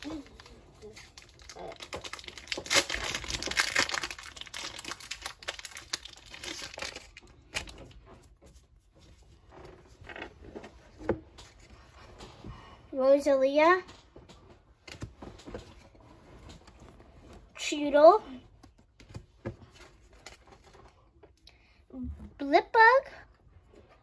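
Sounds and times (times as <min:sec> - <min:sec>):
foil wrapper crinkling and tearing: 0:00.0 - 0:08.0.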